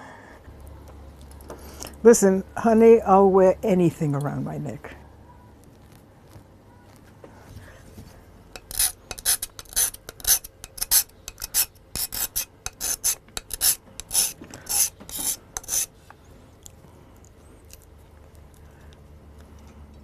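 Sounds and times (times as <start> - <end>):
rasping scrapes: 8.6 - 15.9.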